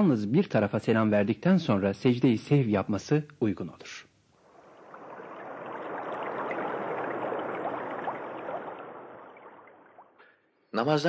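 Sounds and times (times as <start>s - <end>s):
rushing water-like noise with crackle: 4.3s - 10.2s.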